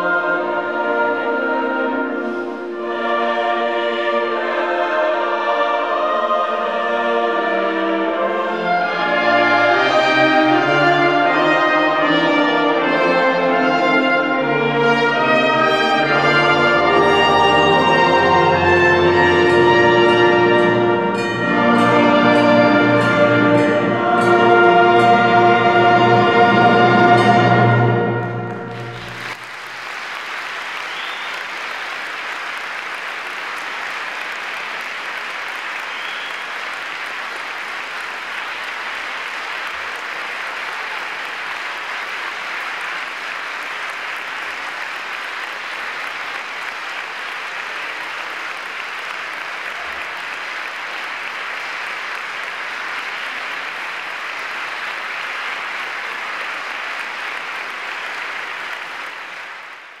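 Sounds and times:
audience applauding: 28.4 - 60.0.

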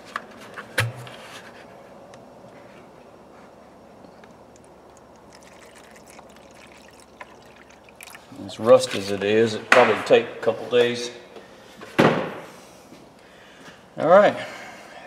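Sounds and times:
liquid trickling into metal tray: 4.6 - 8.4.

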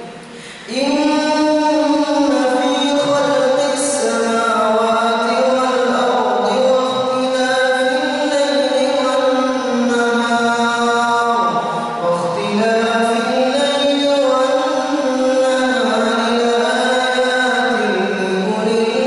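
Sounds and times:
man chanting melodically: 0.7 - 19.0.

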